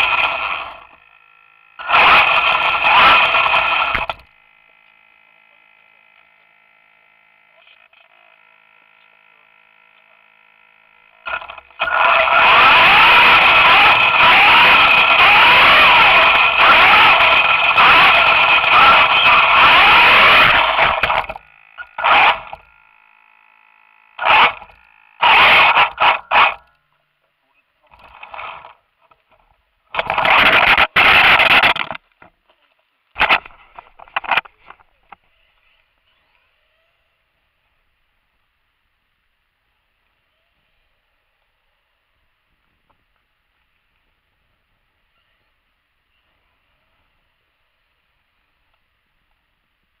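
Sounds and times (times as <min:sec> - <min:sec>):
toy car electric motor whining: 0:00.0 - 0:26.8, 0:27.9 - 0:28.8, 0:29.9 - 0:31.9
wheels on rough asphalt: 0:00.0 - 0:26.8, 0:27.8 - 0:37.0
faint high-pitched tones: 0:34.6 - 0:42.6, 0:43.3 - 0:49.8.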